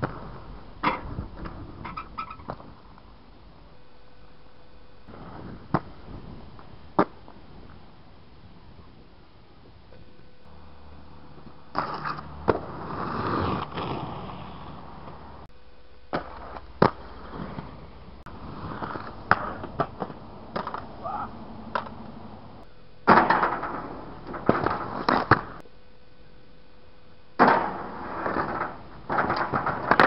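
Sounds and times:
skates scraping along rail: 0.0 - 2.7, 11.3 - 15.5, 16.2 - 21.0, 23.2 - 25.6, 27.6 - 30.0
skate wheels rolling on concrete: 0.0 - 3.3, 5.0 - 15.5, 16.1 - 25.6, 27.4 - 30.0
skates clacking on landing: 23.1 - 25.6, 27.4 - 30.0.

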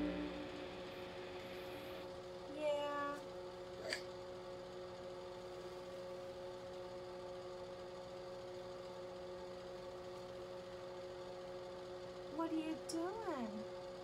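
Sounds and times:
low hiss: 0.0 - 2.1
faint two-tone hum: 0.0 - 14.0.

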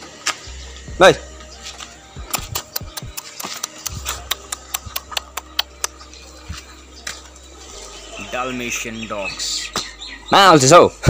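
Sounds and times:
sharp clicks: 2.2 - 6.0.

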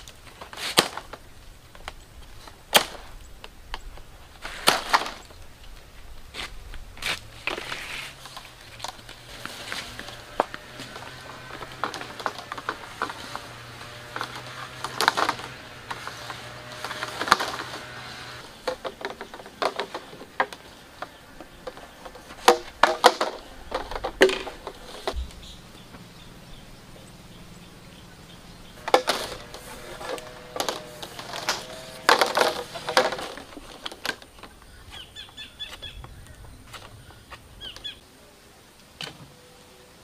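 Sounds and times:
plastic pipe knocking and scraping: 7.5 - 25.3, 28.8 - 34.6.

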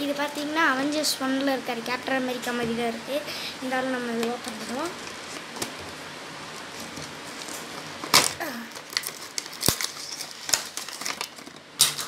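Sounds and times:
packaging crinkling and rustling: 4.2 - 12.0.

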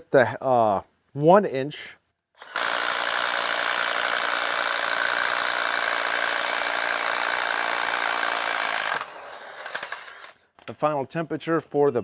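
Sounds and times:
impact driver hammering: 2.4 - 10.3.

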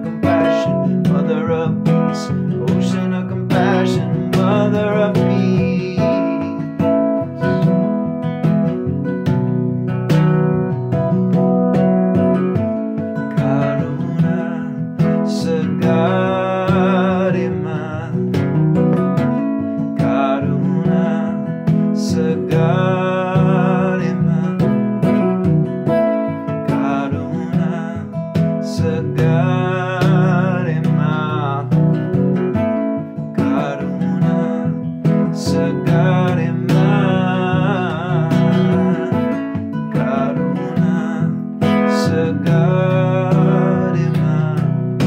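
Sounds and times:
man singing a chant: 0.0 - 6.8, 13.3 - 18.4, 20.0 - 24.9, 26.7 - 31.9, 33.3 - 44.8
strummed acoustic guitar: 0.0 - 45.0.

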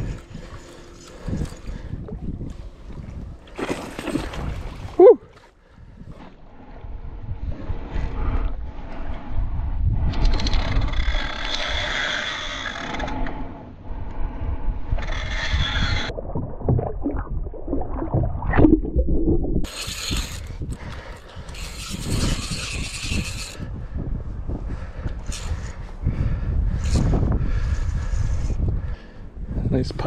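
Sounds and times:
fishing reel ratcheting: 19.7 - 23.7, 25.2 - 25.6.

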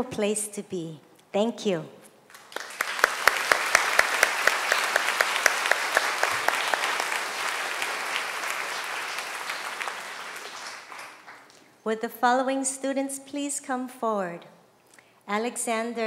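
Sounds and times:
audience applauding: 2.3 - 11.6
sharp claps close by: 2.3 - 11.6.

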